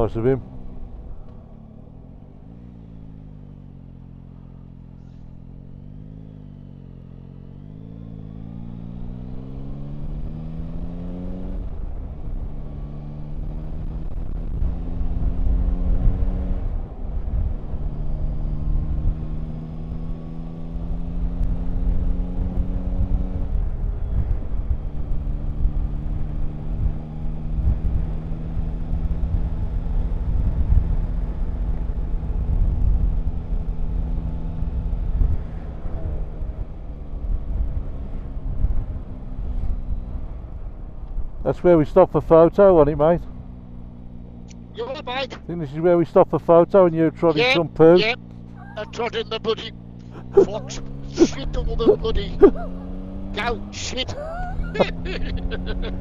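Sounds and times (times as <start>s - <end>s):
motorcycle engine accelerating: 0.0s - 56.0s
wind rumble: 7.8s - 41.5s.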